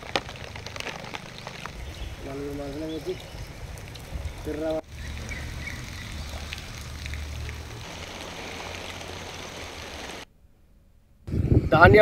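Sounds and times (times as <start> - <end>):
wind rumble on microphone: 0.0 - 10.2, 11.2 - 12.0
faint hiss: 5.4 - 10.3.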